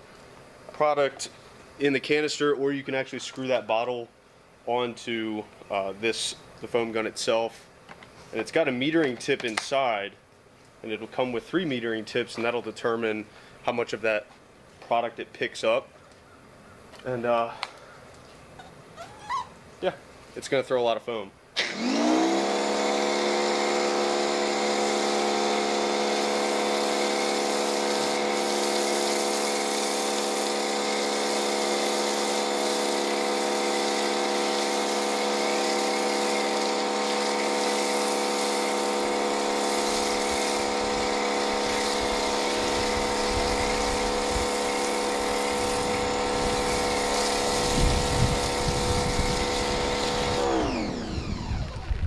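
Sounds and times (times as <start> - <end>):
pressure washer whine: 21.6 - 52.0
foam spray hissing: 22.7 - 50.4.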